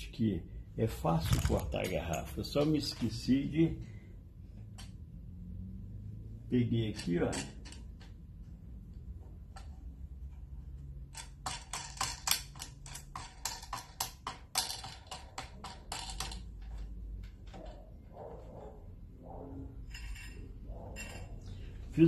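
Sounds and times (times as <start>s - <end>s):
low background hum: 0.0s - 22.0s
wooden machine parts clicking: 6.9s - 8.3s, 10.7s - 18.0s.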